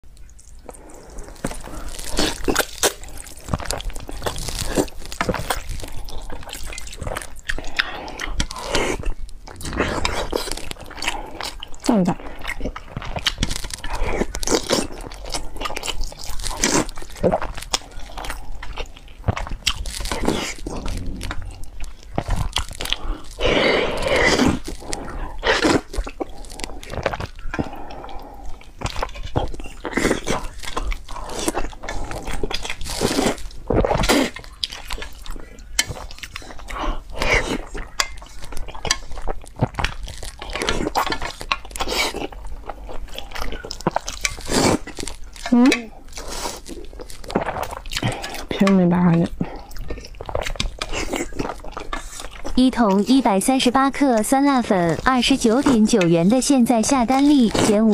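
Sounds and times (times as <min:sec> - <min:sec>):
wet chewing: 0:00.1 - 0:57.9
slurping noodles: 0:00.6 - 0:35.2.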